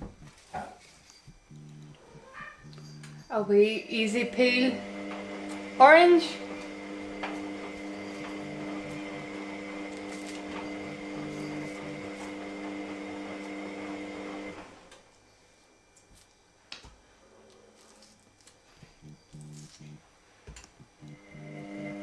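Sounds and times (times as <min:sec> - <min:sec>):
orange being peeled: 0:00.0 - 0:03.3, 0:06.5 - 0:14.4, 0:15.1 - 0:21.5
machine hum: 0:00.0 - 0:16.0, 0:17.8 - 0:20.2, 0:20.8 - 0:22.0.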